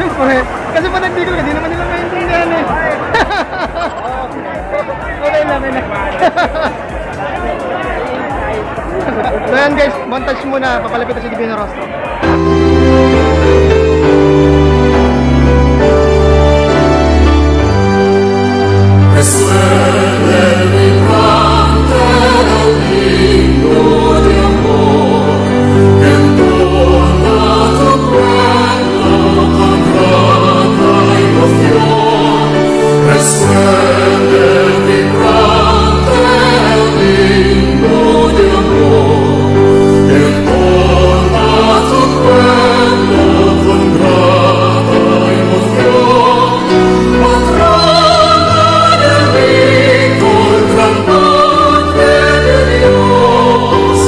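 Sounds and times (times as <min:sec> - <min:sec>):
choir singing a hymn: 0:12.2 - 0:54.0.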